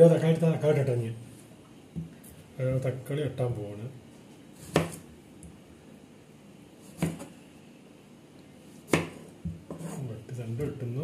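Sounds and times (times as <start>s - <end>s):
knife chopping on cutting board: 4.6s - 5.1s, 6.8s - 7.3s, 8.8s - 10.8s.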